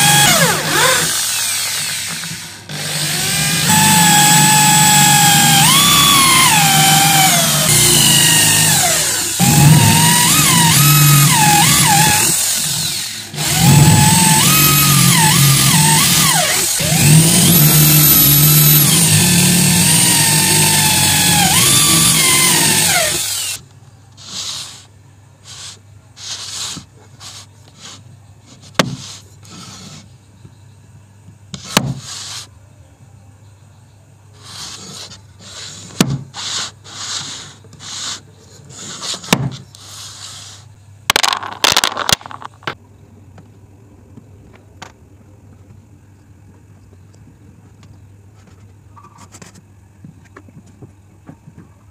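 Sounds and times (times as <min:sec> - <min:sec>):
electric drill boring into wood: 0:00.0 - 0:23.6
wood pieces rubbed and shifted: 0:25.5 - 0:30.1, 0:36.4 - 0:42.8.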